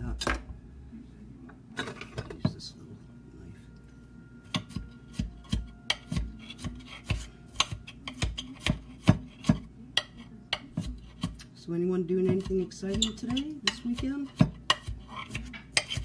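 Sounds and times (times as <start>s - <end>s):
knife chopping on glass plate: 4.5s - 11.4s, 12.2s - 16.0s.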